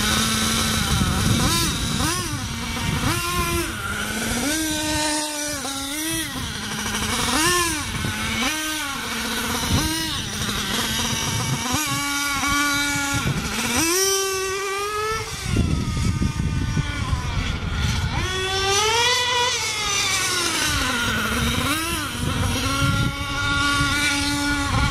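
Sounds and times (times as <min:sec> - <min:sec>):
small model engine revving: 0:00.0 - 0:24.9.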